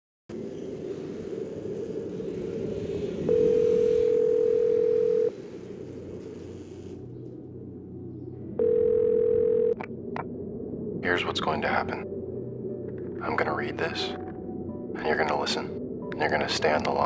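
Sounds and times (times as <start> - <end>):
phone line hiss and hum: 1.8 - 7.0, 8.6 - 9.9
telephone ringback tone: 3.3 - 5.3, 8.6 - 9.8.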